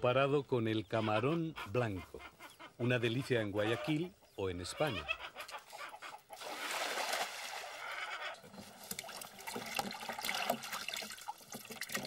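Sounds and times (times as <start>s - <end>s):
water pouring into plastic tub: 6.4s - 12.0s.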